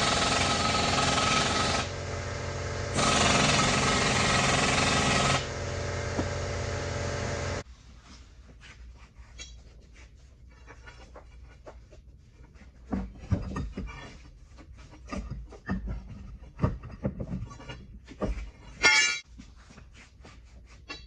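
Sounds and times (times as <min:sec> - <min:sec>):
air impact wrench hammering: 0:00.0 - 0:07.6
faint knocks and clatter: 0:09.2 - 0:21.0.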